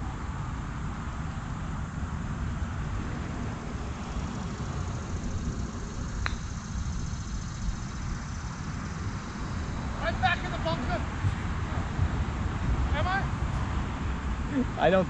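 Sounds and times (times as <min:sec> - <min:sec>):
low outdoor rumble: 0:00.0 - 0:15.0
golf club striking ball: 0:04.2 - 0:07.7.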